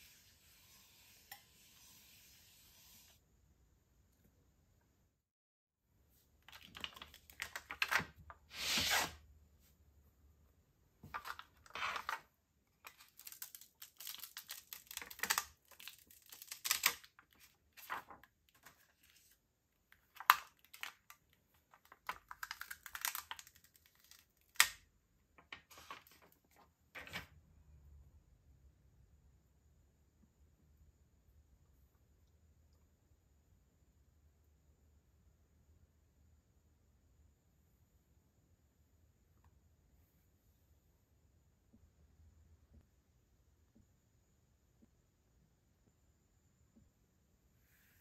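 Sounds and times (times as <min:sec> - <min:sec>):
plastic sheet crinkling: 0:12.8 - 0:19.4, 0:20.0 - 0:24.7.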